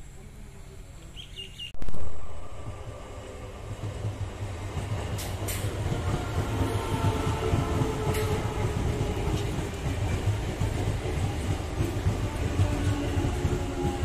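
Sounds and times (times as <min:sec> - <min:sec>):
bird chirp: 0:01.1 - 0:01.8
electric train passing: 0:01.8 - 0:14.0.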